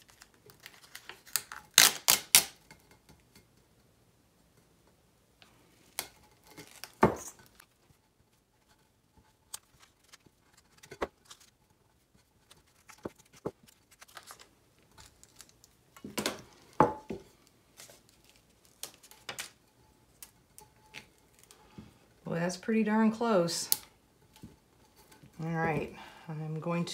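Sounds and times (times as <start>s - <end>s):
backing paper crinkling and peeling: 0.0s - 2.6s, 6.0s - 8.0s, 9.4s - 16.7s, 17.7s - 21.6s.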